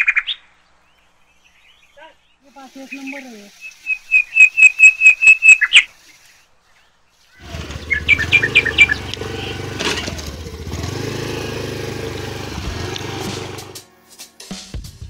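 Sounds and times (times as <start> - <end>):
high bird chirps: 0.0 - 9.8
motor scooter engine running: 7.4 - 13.8.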